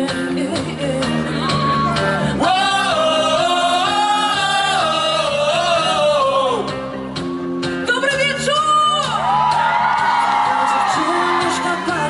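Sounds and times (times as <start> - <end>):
drums: 0.0 - 12.0
electric guitars: 0.0 - 12.0
pop-rock band playing: 0.0 - 12.0
singer holding long notes: 1.3 - 6.9.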